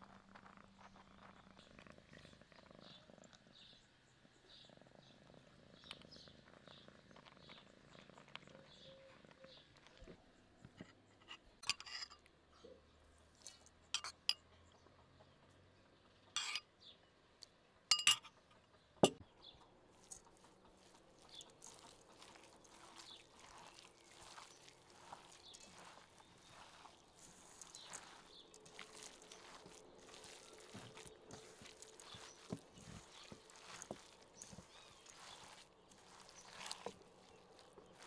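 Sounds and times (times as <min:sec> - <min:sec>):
dishes clinking: 0:17.9 - 0:18.3
hand kneading wet meat filling: 0:19.9 - 0:38.0.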